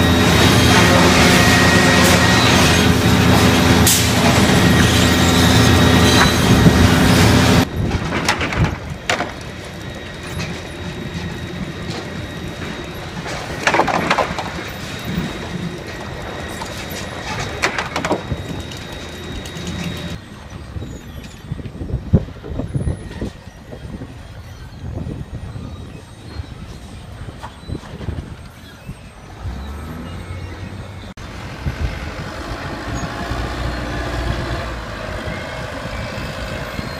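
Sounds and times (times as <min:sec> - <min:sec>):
loud sawmill conveyor din: 0:00.0 - 0:36.9
boards knocking and clattering: 0:13.2 - 0:14.8.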